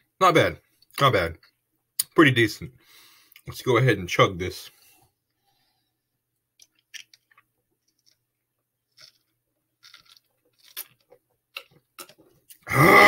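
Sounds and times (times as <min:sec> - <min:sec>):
loud burp: 0:12.6 - 0:13.0.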